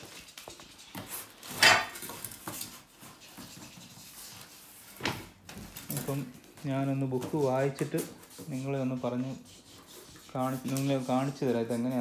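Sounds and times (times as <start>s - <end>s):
rustling plastic and cardboard packing: 0.0s - 9.3s.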